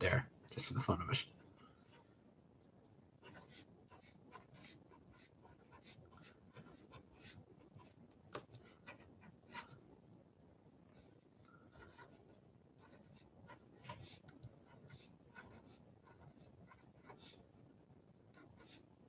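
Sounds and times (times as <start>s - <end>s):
marker pen scratching on paper: 3.2s - 9.8s, 10.9s - 17.4s, 18.3s - 18.9s.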